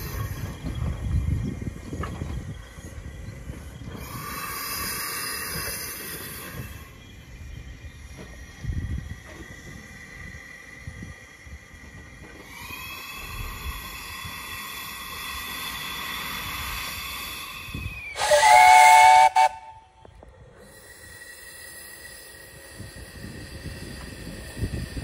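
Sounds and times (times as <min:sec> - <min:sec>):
steam hissing: 0:00.0 - 0:19.9, 0:20.5 - 0:25.0
steam whistle blast: 0:18.1 - 0:20.0.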